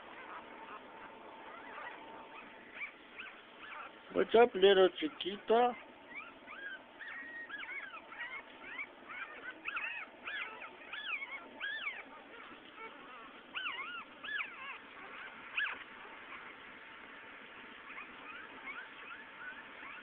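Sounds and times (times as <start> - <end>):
puppies whimpering and squeaking: 0.0 - 20.0.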